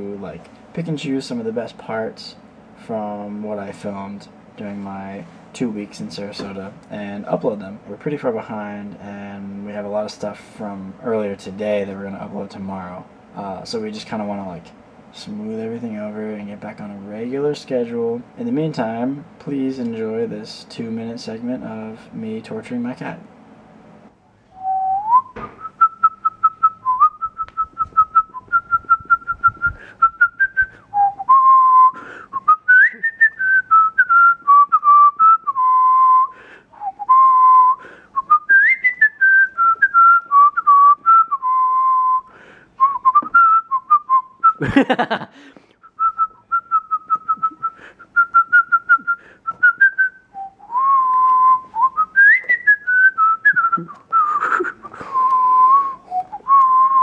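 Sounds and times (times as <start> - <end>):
person whistling a tune: 24.6 - 44.7, 45.8 - 57.0.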